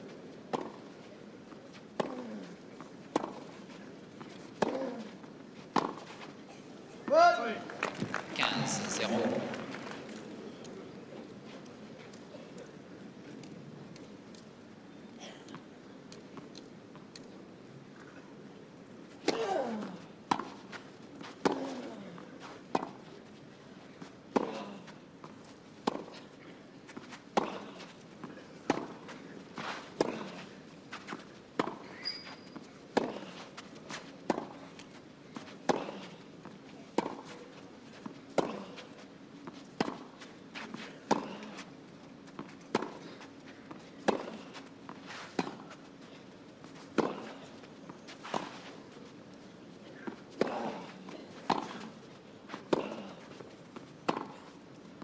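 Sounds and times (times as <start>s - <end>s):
racket hitting tennis ball: 32.9s - 34.6s, 39.5s - 41.5s, 46.7s - 47.4s, 50.0s - 52.0s, 54.1s - 54.4s.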